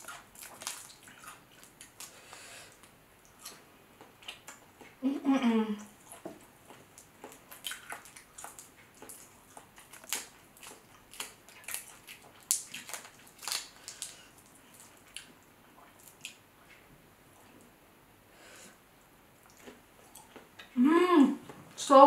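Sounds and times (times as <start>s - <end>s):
wet squishes: 0.0s - 4.6s, 6.0s - 16.4s
shrimp shell crackling: 9.9s - 14.9s.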